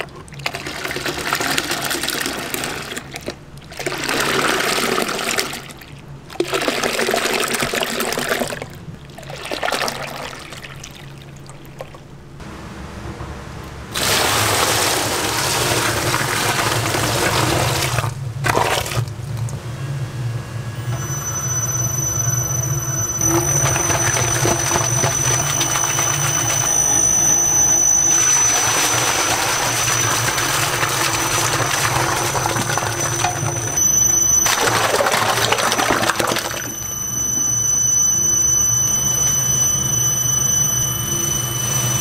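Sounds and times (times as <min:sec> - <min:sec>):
mixer motor hum with whine: 0:12.4 - 0:42.0.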